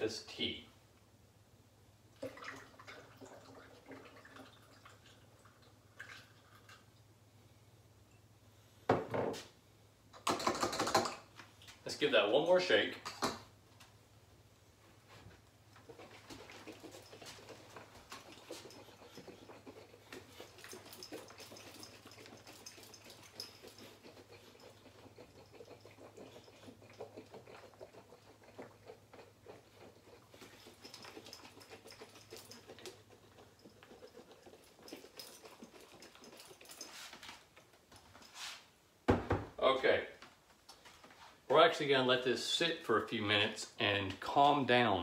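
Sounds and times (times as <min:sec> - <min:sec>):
liquid sloshing in glass jug: 0:02.2 - 0:06.9, 0:15.8 - 0:37.5.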